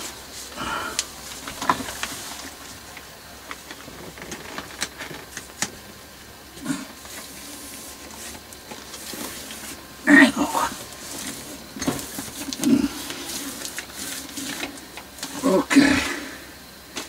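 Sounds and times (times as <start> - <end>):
steady background hiss: 0.0 - 17.0
hands handling parts: 6.9 - 10.0, 10.6 - 15.6.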